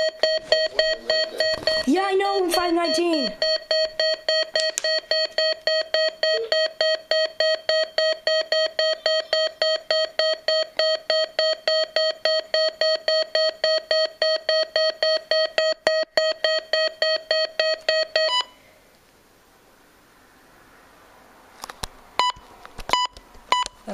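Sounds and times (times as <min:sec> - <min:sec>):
pulsed electronic alarm beeps: 0:00.0 - 0:18.6.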